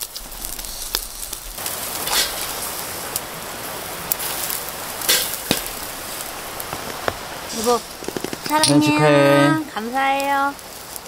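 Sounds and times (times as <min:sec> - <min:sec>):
meat sizzling over charcoal: 0:00.0 - 0:11.0
sharp clicks and pops: 0:06.6 - 0:07.3, 0:07.9 - 0:08.8.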